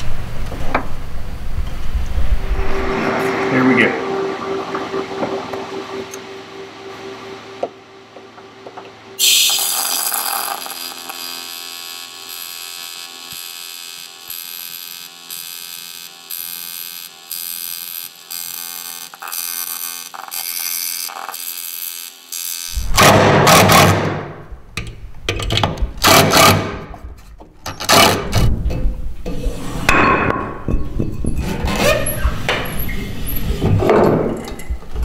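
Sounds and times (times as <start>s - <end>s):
welding arc buzzing: 6.0s - 24.0s.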